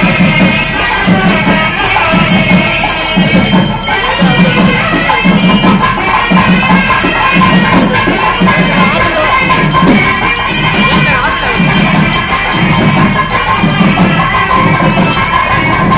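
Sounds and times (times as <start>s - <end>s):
crowd talking: 0.0s - 15.9s
drum beating: 0.0s - 15.9s.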